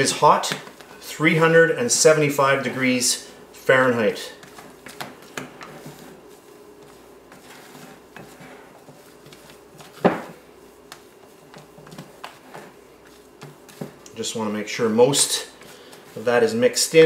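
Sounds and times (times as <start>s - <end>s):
spatula scraping glass bowl: 7.3s - 9.5s.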